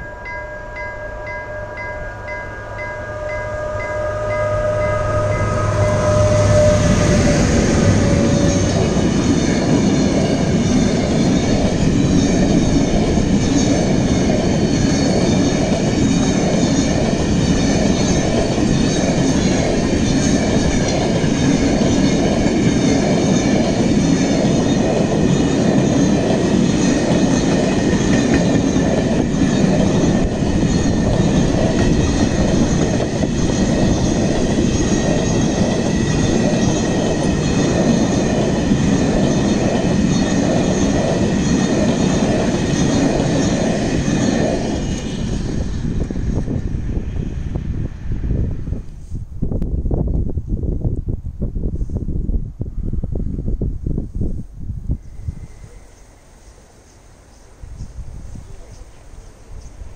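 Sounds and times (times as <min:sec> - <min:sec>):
train wheels rumbling on rail: 0:02.2 - 0:59.9
wheels squealing: 0:02.6 - 0:13.0.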